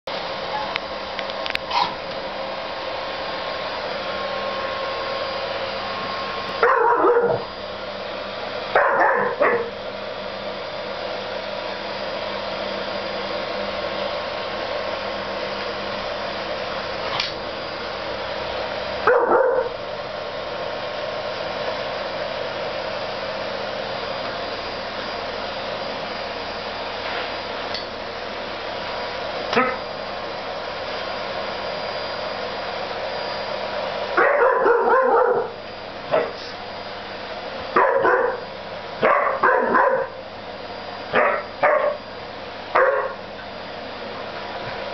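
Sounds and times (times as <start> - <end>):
vacuum cleaner running: 0.1 - 44.9
dog barking: 6.6 - 7.5, 8.8 - 9.7, 19.0 - 19.8, 29.6 - 29.8, 34.2 - 36.4, 37.8 - 38.4, 39.0 - 40.2, 41.1 - 42.0, 42.8 - 43.2.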